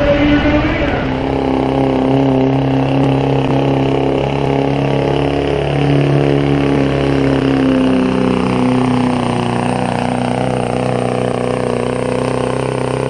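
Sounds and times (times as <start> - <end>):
diesel truck engine idling: 0.0 - 13.0.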